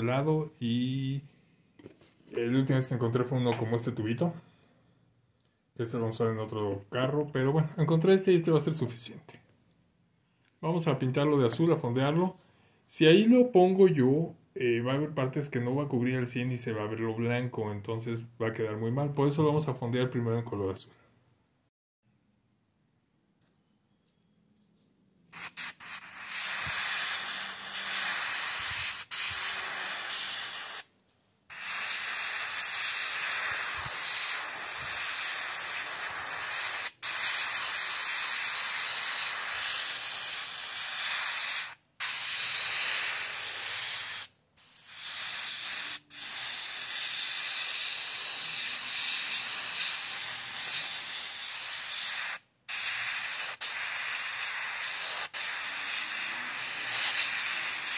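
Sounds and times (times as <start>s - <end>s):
airbrush air hiss: 25.3s - 30.9s, 31.5s - 57.9s.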